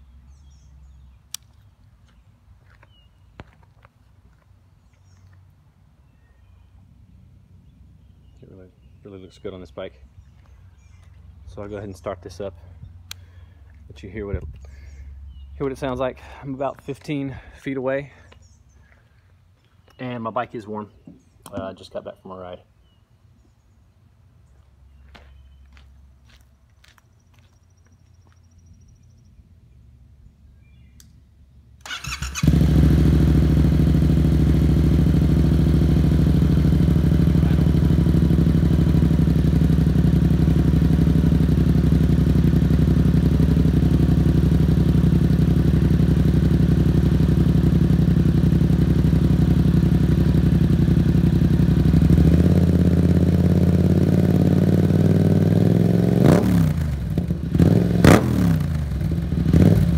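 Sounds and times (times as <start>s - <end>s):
motorcycle engine idling: 31.9s - 59.9s.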